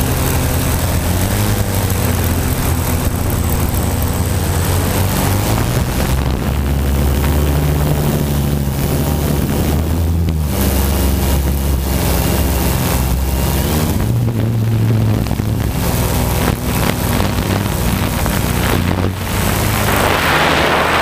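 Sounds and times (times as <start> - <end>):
quadcopter motors humming: 0.0 - 21.0
rushing air hiss: 19.1 - 21.0.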